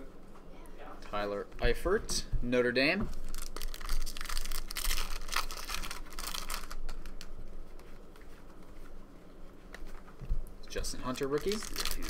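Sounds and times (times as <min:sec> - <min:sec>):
foil wrapper crinkling: 0:03.1 - 0:07.3, 0:11.0 - 0:12.0
cards clicking and rustling: 0:11.2 - 0:12.0.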